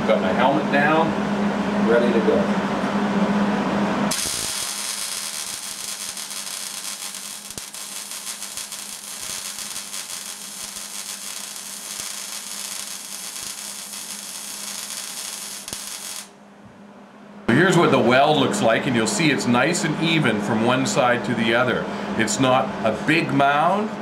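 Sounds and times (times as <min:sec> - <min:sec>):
welding arc crackling sizzle: 0:04.1 - 0:16.3.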